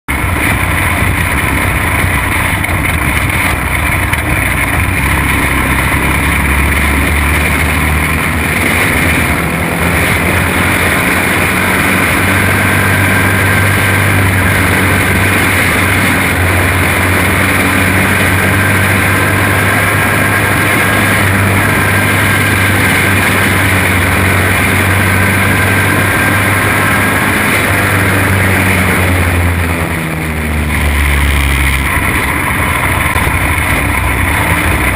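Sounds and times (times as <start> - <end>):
kart racing engine drone: 0.1 - 34.9.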